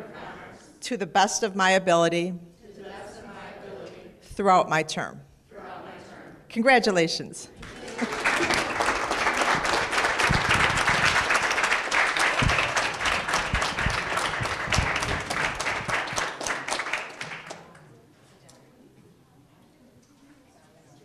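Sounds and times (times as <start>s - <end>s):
crowd applauding: 7.6s - 17.9s.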